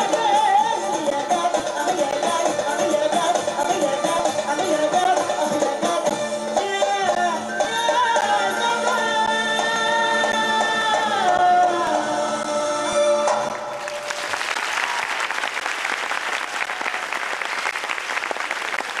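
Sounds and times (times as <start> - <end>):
song with singing: 0.0 - 14.0
audience applauding: 13.5 - 19.0.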